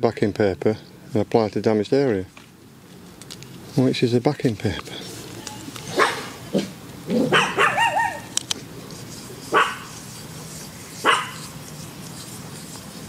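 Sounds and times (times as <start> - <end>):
dog barking: 5.9 - 8.3, 9.5 - 9.9, 11.0 - 11.5
dog yelping whine: 5.9 - 8.3, 9.5 - 9.9, 11.0 - 11.5.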